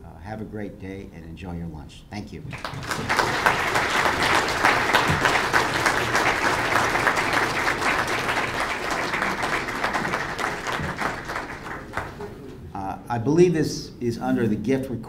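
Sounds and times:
audience applauding: 2.5 - 12.6.

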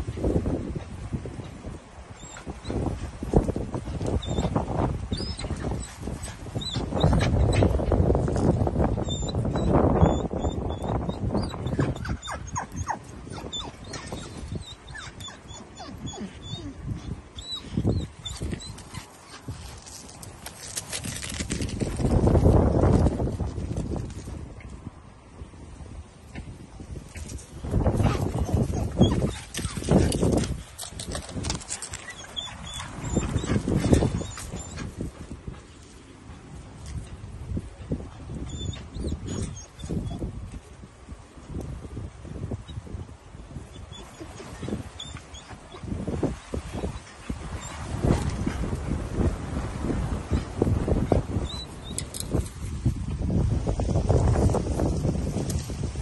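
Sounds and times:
dogs vocalising: 4.2 - 7.8, 9.1 - 19.5, 28.0 - 30.4, 31.1 - 34.9, 43.7 - 45.9
dog whining: 9.0 - 16.8.

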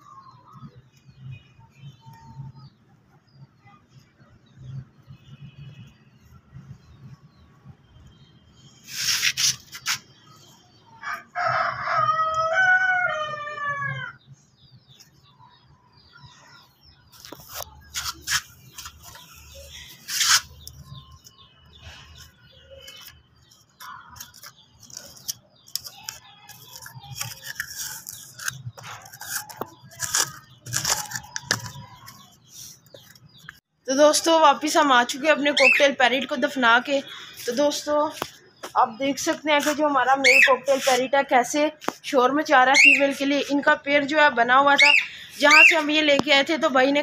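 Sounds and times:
hands scraping soil into pot: 8.8 - 10.1, 17.2 - 19.3, 20.0 - 20.8, 24.2 - 33.2
knocks and crunches: 24.1 - 32.1.

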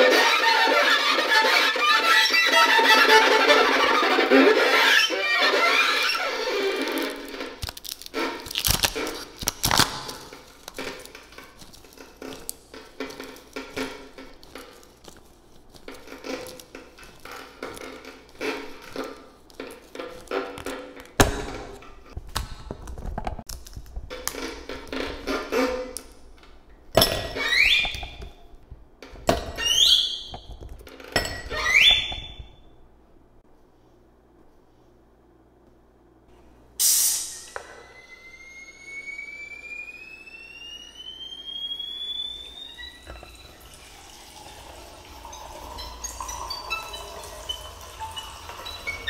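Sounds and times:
held violin drone: 0.0 - 7.5, 37.5 - 43.7
short rising squeals: 36.8 - 49.0
ice clinking into glass: 43.1 - 49.0.

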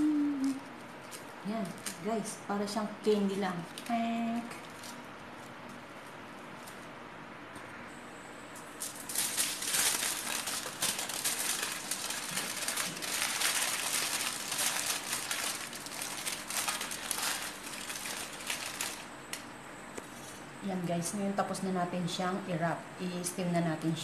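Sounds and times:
aluminium foil crinkling: 0.1 - 7.0, 8.6 - 19.5.

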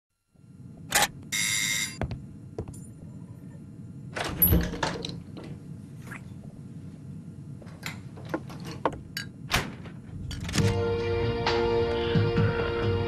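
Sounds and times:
low room hum: 0.2 - 13.0
door thunk: 8.9 - 10.7.

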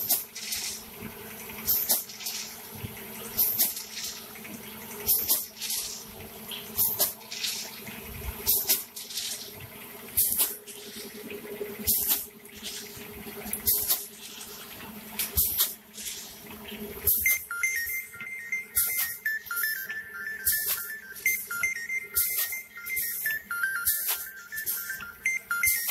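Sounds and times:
packing machine humming: 0.0 - 25.9
electronic beeping tune: 17.0 - 25.9.

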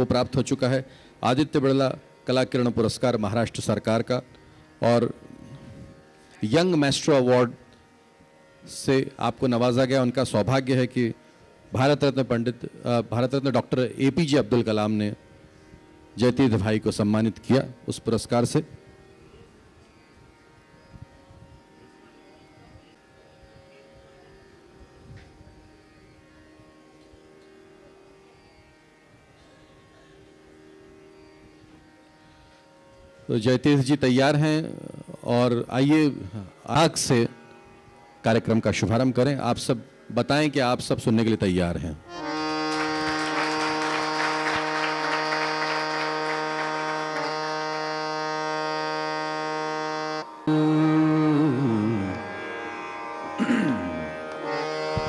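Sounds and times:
tanpura drone: 0.0 - 55.0.

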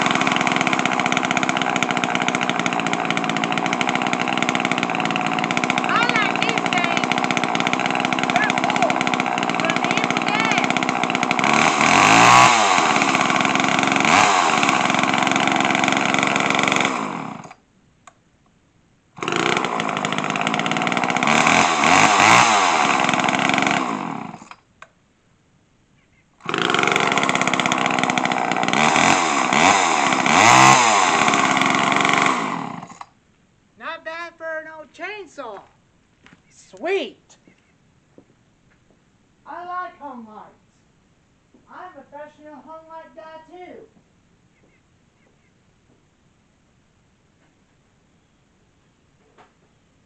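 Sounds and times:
chainsaw engine revving: 0.0 - 17.6, 19.2 - 24.6, 26.4 - 33.1.

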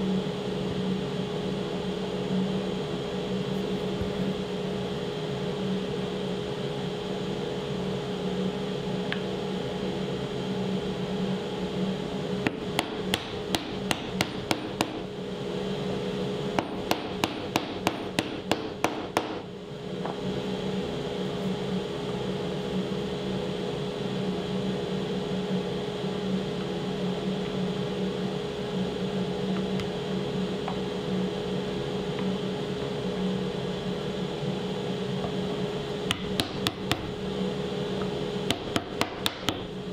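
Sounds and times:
steady hum: 0.0 - 39.9.

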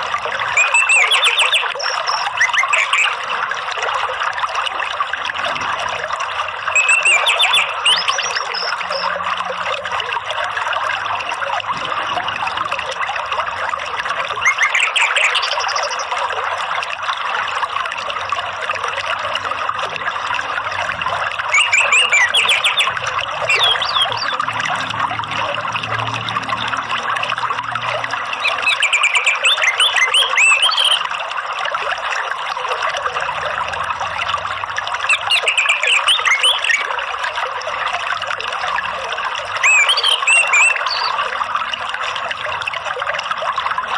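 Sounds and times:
trickling stream: 0.0 - 43.9
bird chirping: 0.5 - 3.2, 6.8 - 9.1, 14.4 - 16.1, 21.5 - 24.4, 28.4 - 31.0, 35.1 - 36.9, 39.6 - 41.2.

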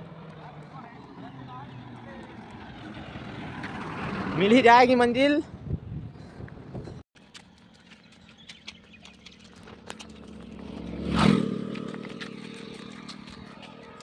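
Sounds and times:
vehicle engine passing: 0.0 - 4.8, 9.1 - 14.0
footsteps on asphalt: 0.1 - 4.1, 6.2 - 14.0.

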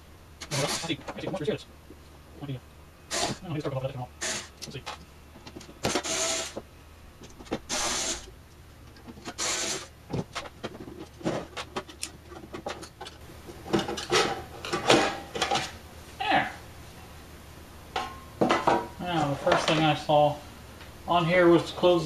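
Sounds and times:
electric screwdriver whirring: 7.7 - 8.3, 9.4 - 9.9.

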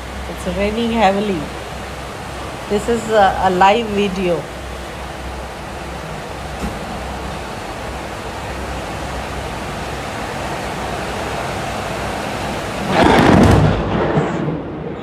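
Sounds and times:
heavy rain falling: 0.0 - 15.0
loud thunder clap: 12.8 - 15.0.

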